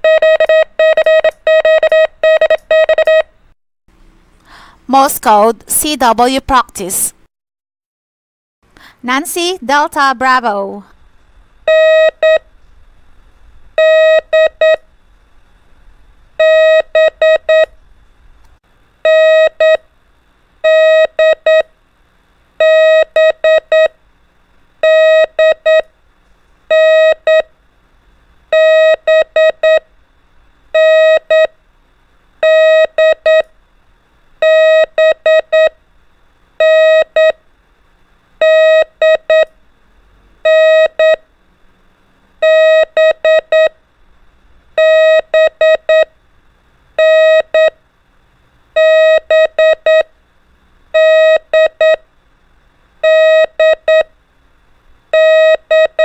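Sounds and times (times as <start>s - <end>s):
morse code beeps: 0.0s - 3.3s, 11.7s - 12.4s, 13.8s - 14.8s, 16.4s - 17.7s, 19.1s - 19.8s, 20.6s - 21.7s, 22.6s - 23.9s, 24.8s - 25.9s, 26.7s - 27.5s, 28.5s - 29.8s, 30.8s - 31.5s, 32.4s - 33.5s, 34.4s - 35.8s, 36.6s - 37.4s, 38.4s - 39.5s, 40.5s - 41.2s, 42.4s - 43.8s, 44.8s - 46.1s, 47.0s - 47.8s, 48.8s - 50.1s, 51.0s - 52.0s, 53.0s - 54.1s, 55.2s - 56.0s.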